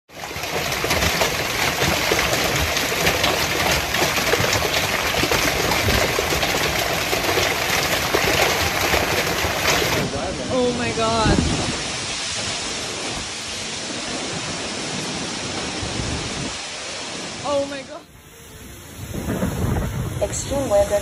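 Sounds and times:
hail and rain pelting: 0.1s - 18.0s, 18.6s - 21.0s.

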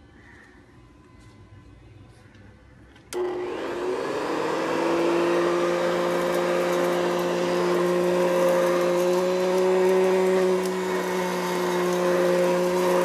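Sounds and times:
vacuum cleaner motor whine: 3.1s - 13.0s.

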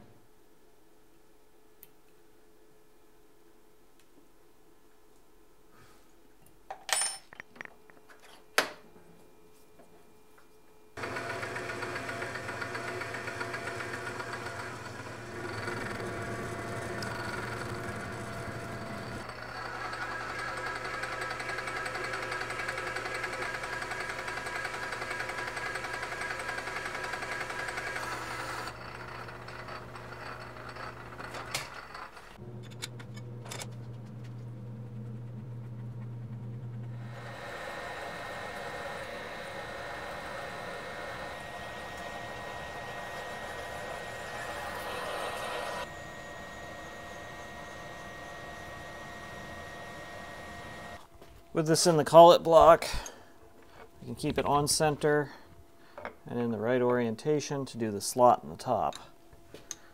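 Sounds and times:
metal lathe humming: 11.0s - 51.1s.

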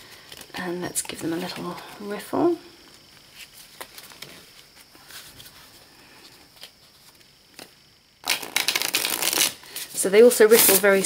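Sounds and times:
cards riffle-shuffling: 6.6s - 11.0s.

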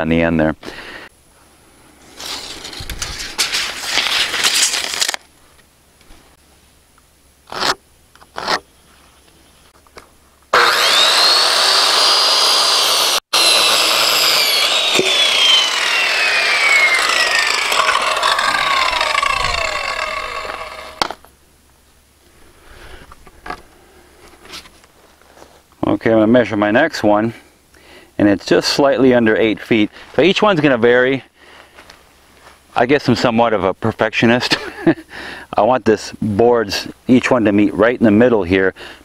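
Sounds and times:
circular saw cutting wood: 10.5s - 21.2s
saw blade whine coasting down: 10.5s - 21.2s.

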